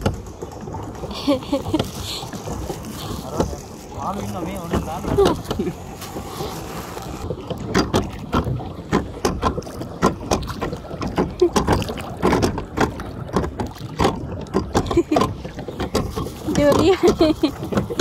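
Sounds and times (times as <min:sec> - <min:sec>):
water splashing and lapping: 0:00.0 - 0:18.0
knocks on boat: 0:07.5 - 0:18.0.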